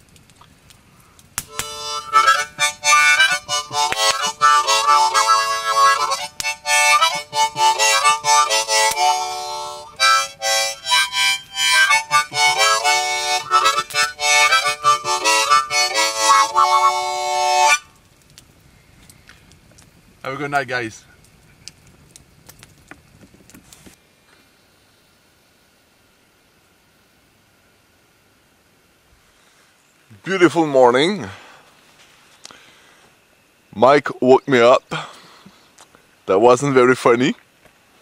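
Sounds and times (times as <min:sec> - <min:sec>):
harmonica playing: 0:01.5 - 0:17.9.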